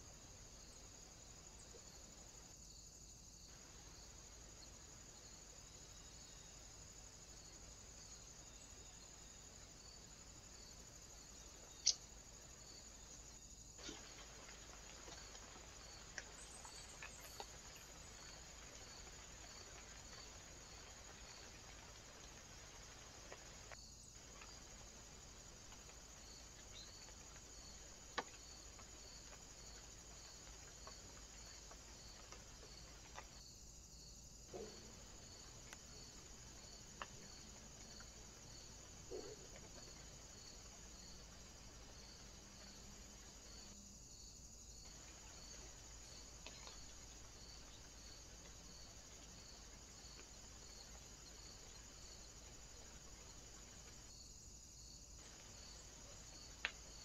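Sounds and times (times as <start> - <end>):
faint steady hiss: 0.0 - 57.0.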